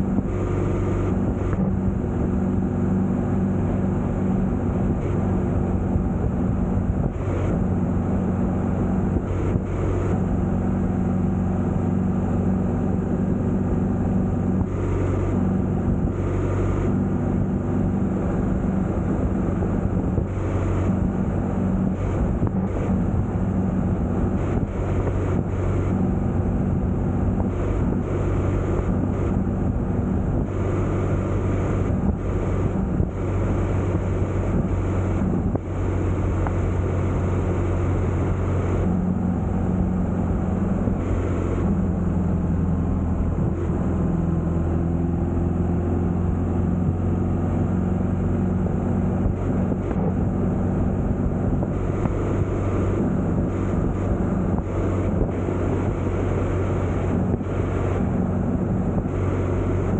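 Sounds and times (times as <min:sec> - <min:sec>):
vehicle engine running: 0:00.0 - 0:59.9
wind buffeting microphone: 0:17.3 - 0:35.8.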